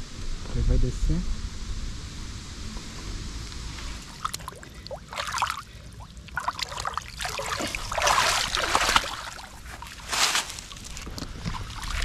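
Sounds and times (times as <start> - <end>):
fish thrashing in water: 4.2 - 12.0.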